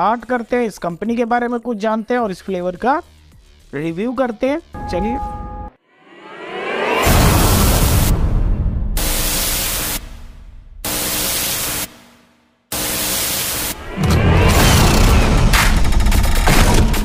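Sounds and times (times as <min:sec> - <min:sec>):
white-noise static blasts: 0:09.0 - 0:12.0.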